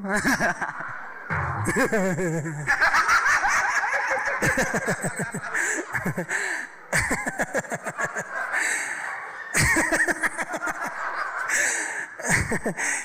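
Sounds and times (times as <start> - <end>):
person laughing close up: 0.0 - 8.7, 12.2 - 13.0
audience laughing: 0.0 - 13.0.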